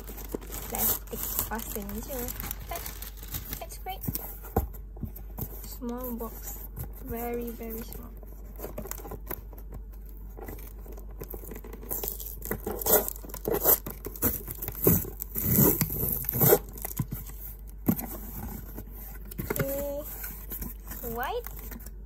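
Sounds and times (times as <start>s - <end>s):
packing tape ripping: 0.0s - 3.8s, 10.6s - 17.1s
cardboard flaps scraping: 0.0s - 9.4s.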